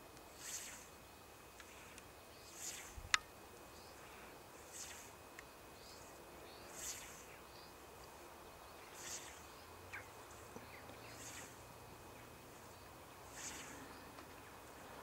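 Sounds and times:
scythe swishing through grass: 0.3 - 1.0, 1.7 - 3.1, 4.6 - 5.2, 8.9 - 10.0.

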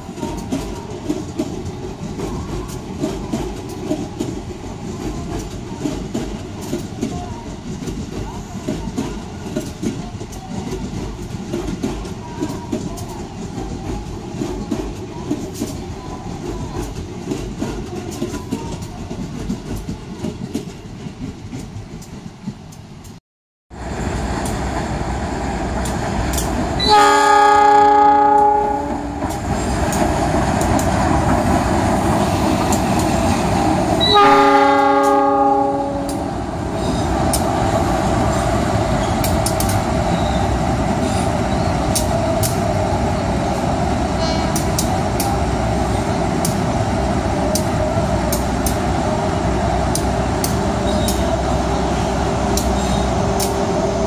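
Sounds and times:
train rolling on rails: 0.0 - 54.0
locomotive engine rumble: 23.8 - 54.0
locomotive horn blasts: 26.8 - 29.2, 34.0 - 36.3.

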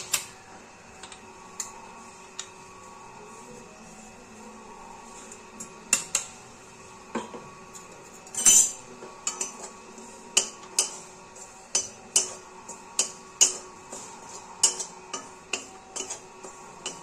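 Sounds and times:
spatula scraping a pan: 9.3 - 17.0.

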